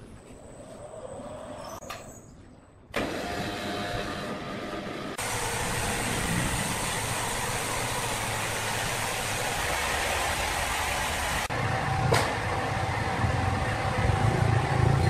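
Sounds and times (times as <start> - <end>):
heavy machinery running: 3.0 - 15.0.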